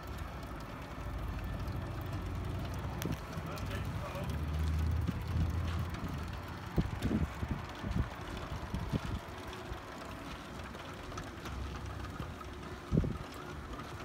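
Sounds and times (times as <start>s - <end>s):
cement mixer drive running: 0.0s - 14.0s
wind buffeting microphone: 2.6s - 9.8s, 12.7s - 13.4s.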